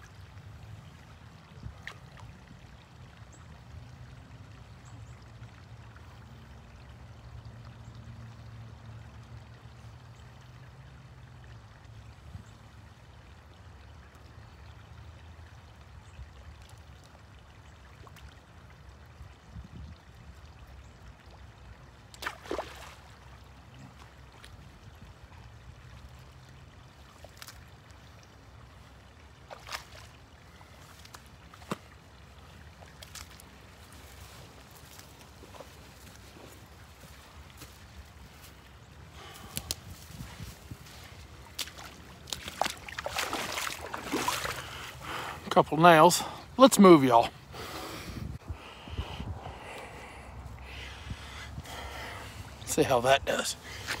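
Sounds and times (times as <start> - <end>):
water trickling and dripping: 0.0 - 48.0
water splashes: 0.0 - 54.0
rubber boots sloshing in water: 22.1 - 23.2, 28.8 - 45.5.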